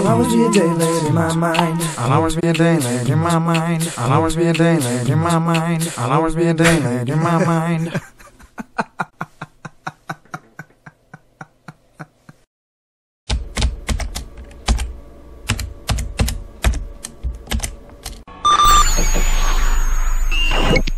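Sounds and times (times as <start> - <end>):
typing on computer keyboard: 13.3 - 14.9.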